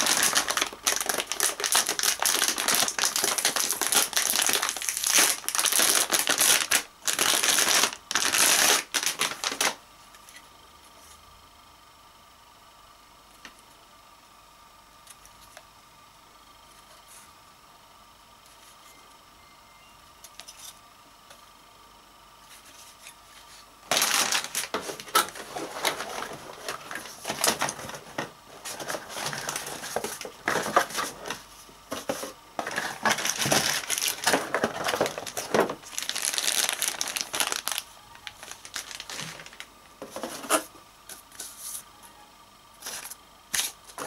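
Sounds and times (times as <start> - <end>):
packaging crinkling and rustling: 0.0 - 9.8, 23.9 - 40.7.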